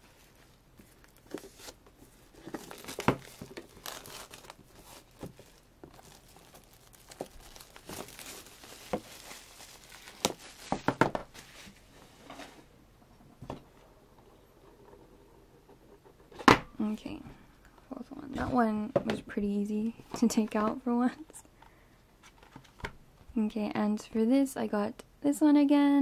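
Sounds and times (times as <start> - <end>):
plastic shrink wrap crinkling: 0.8 - 11.8.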